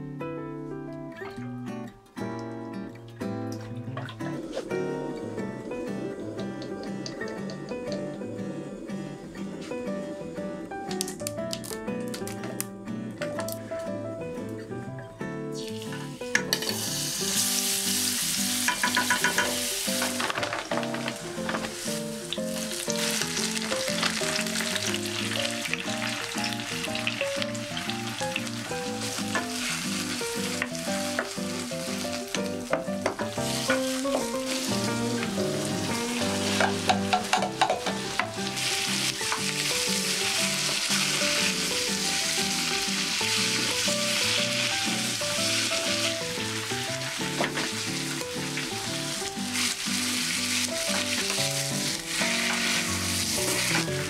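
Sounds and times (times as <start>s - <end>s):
light background music: 0.0s - 54.0s
meat and vegetables sizzling in oil: 15.5s - 54.0s.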